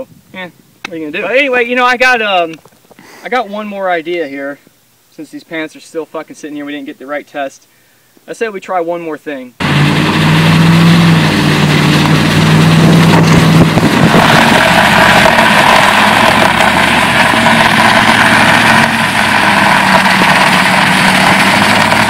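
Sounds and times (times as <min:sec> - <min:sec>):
rig dragging on concrete: 0:09.6 - 0:22.0
vehicle engine running: 0:09.6 - 0:22.0.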